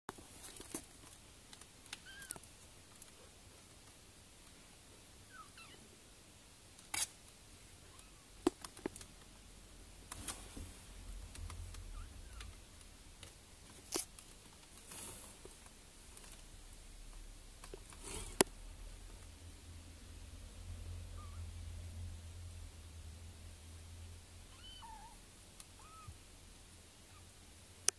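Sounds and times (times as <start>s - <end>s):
kittens mewing: 25.8s - 26.2s.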